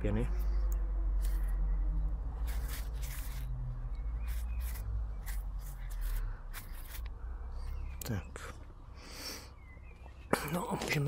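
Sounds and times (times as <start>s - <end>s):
gloved hands rustling: 2.4s - 3.5s.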